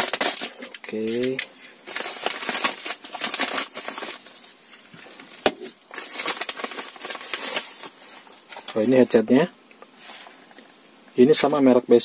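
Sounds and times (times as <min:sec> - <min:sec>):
plastic packaging crinkling: 0:00.0 - 0:09.1.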